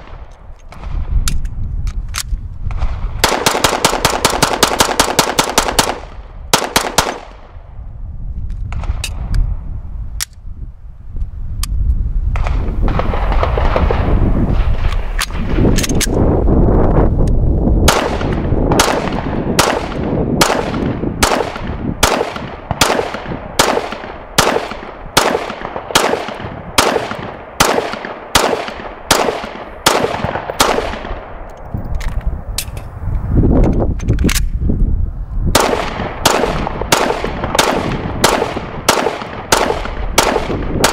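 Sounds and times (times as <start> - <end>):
pistol shots: 2.7 - 7.5, 17.8 - 31.5, 35.5 - 40.9.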